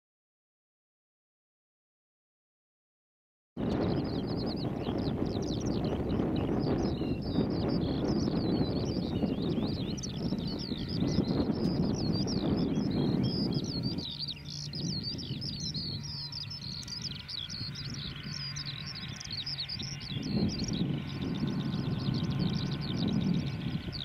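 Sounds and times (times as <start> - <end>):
birds chirping: 3.6 - 24.0.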